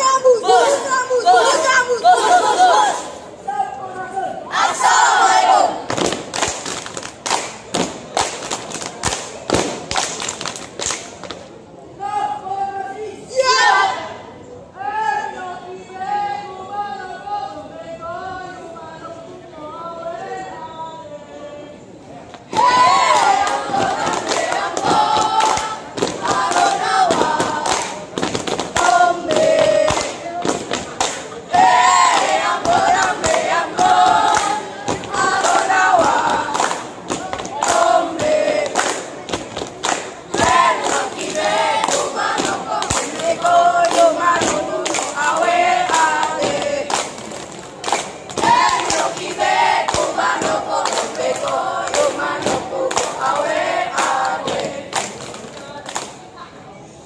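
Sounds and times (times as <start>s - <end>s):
group chanting and singing: 0.0s - 6.8s, 12.0s - 56.2s
children chanting in unison: 4.5s - 5.9s, 28.7s - 30.6s, 31.5s - 39.1s, 40.0s - 46.9s, 48.4s - 54.9s
hand claps and stomps: 23.7s - 31.3s.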